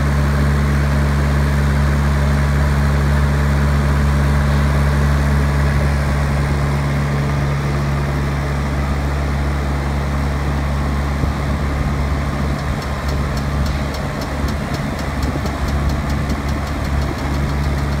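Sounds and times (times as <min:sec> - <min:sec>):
street sweeper engine running: 0:00.0 - 0:18.0
rapid even ticking: 0:12.6 - 0:18.0.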